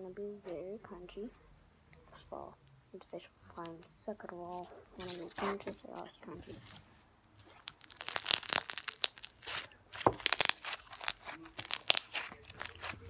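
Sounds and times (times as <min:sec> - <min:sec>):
slime crunching and crackling: 0:03.5 - 0:06.8, 0:07.4 - 0:13.0.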